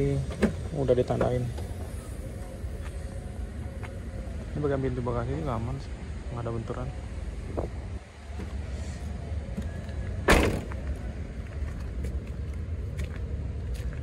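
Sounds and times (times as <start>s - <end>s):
car door thump: 10.2s - 10.8s.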